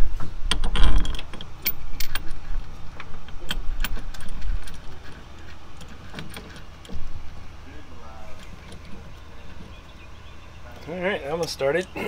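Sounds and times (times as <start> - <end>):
low handling rumble: 0.0 - 12.0
metal bolts clicking: 0.5 - 7.2, 8.3 - 10.0.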